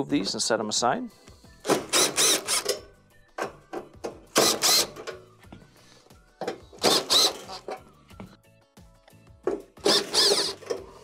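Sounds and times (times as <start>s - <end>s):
light background music: 0.0s - 11.0s
cordless drill running in bursts: 1.9s - 2.6s, 4.4s - 4.9s, 6.8s - 7.5s, 9.9s - 10.6s.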